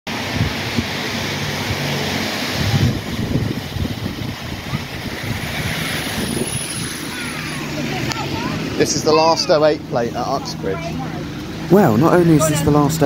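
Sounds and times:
wind buffeting microphone: 0:00.1 - 0:09.1
bus approaching: 0:00.1 - 0:13.0
traffic noise: 0:00.1 - 0:13.0
tyres on a wet road: 0:00.1 - 0:13.0.

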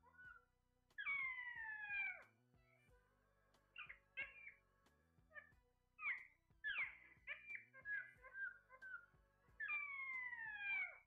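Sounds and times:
parakeets squawking: 0:01.0 - 0:02.2, 0:03.8 - 0:04.6, 0:05.3 - 0:11.0.

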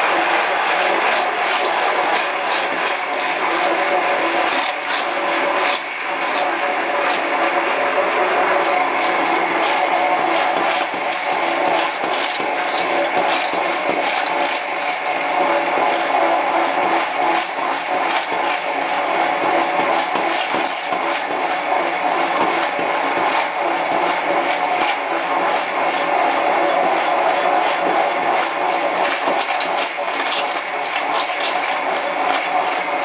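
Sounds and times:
immersion blender whining: 0:00.0 - 0:33.0.

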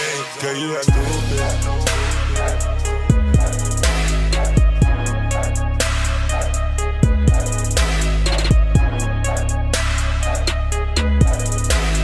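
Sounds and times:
loud beat hit: 0:00.9 - 0:09.1
deep sustained bass: 0:00.9 - 0:12.0.

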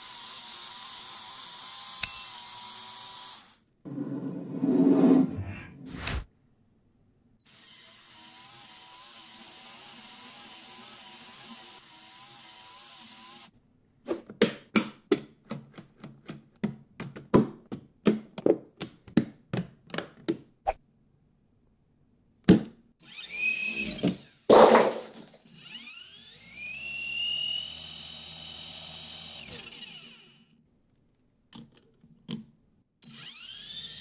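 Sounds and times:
toy motor whining: 0:00.0 - 0:03.6, 0:07.5 - 0:13.5, 0:23.0 - 0:24.5, 0:25.4 - 0:30.6, 0:33.0 - 0:34.0.

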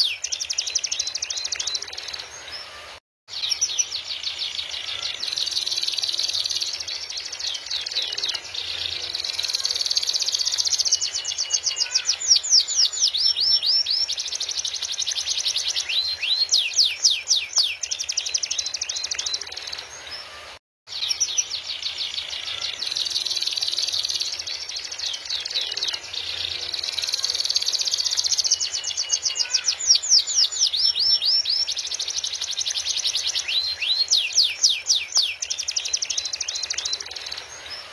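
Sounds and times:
canary singing trills: 0:00.0 - 0:37.9.

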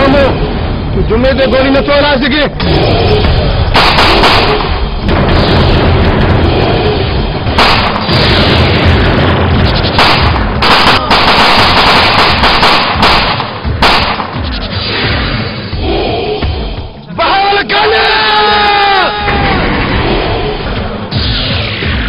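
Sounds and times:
automatic rifle fire bursts: 0:03.8 - 0:04.7, 0:09.9 - 0:14.4.

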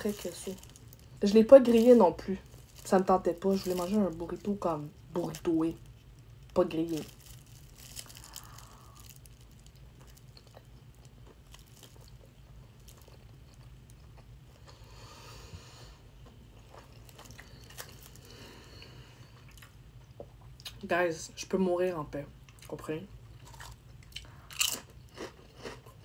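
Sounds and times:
person chewing: 0:05.8 - 0:15.2, 0:16.1 - 0:20.8, 0:23.4 - 0:26.0.

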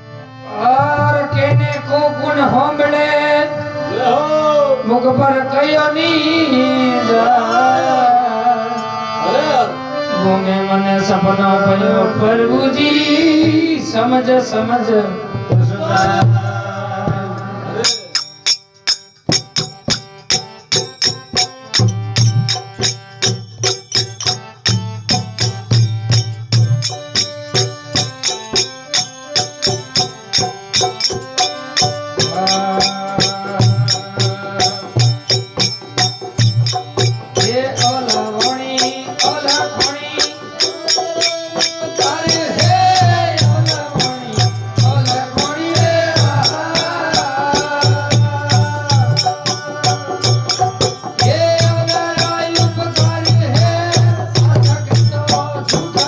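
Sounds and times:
held melodic notes: 0:03.5 - 0:12.8, 0:15.2 - 0:56.0
hand drum beat: 0:17.1 - 0:56.0.

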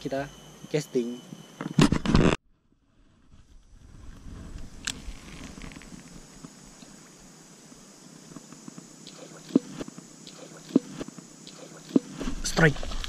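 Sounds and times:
grass rustling: 0:02.9 - 0:13.0.

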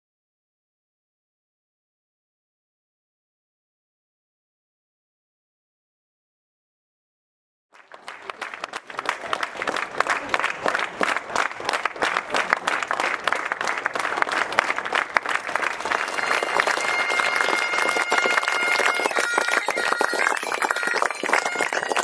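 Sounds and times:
crowd clapping: 0:07.8 - 0:22.0.

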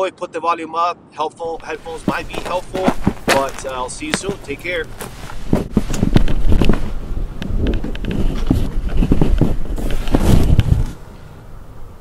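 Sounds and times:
handling noise on microphone: 0:01.6 - 0:11.1.

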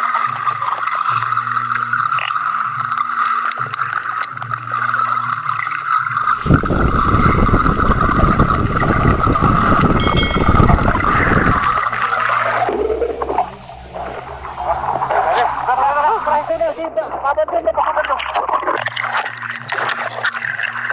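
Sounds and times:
churning water: 0:00.0 - 0:20.9
steady underwater whine: 0:04.6 - 0:16.8
low hum: 0:06.4 - 0:16.8.

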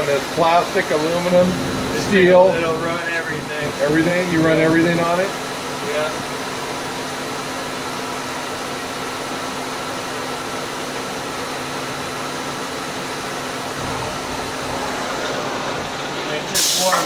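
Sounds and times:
lathe machine hum: 0:00.0 - 0:17.0
steady constant tones: 0:00.4 - 0:06.2.

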